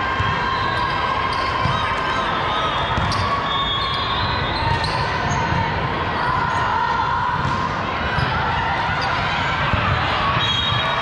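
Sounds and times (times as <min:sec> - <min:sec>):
sneaker squeaks: 0:00.5 - 0:05.7
volleyballs hit and bouncing: 0:07.3 - 0:11.0.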